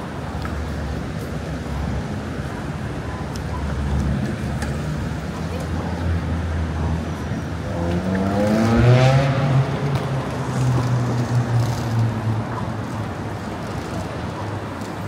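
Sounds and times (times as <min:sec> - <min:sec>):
street traffic noise: 0:00.0 - 0:15.0
vehicle accelerating past: 0:07.7 - 0:11.6.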